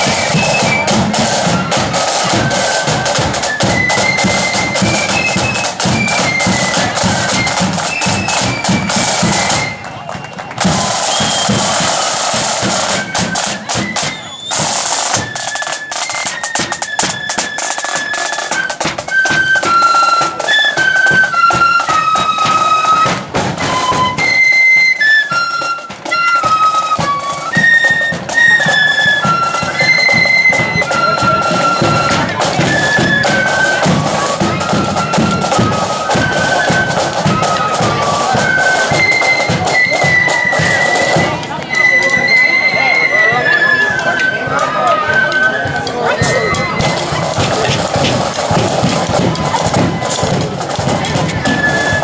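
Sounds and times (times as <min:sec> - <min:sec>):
flutes playing melody: 0:00.0 - 0:52.0
side drums beating: 0:00.0 - 0:52.0
bass drum: 0:46.2 - 0:51.5.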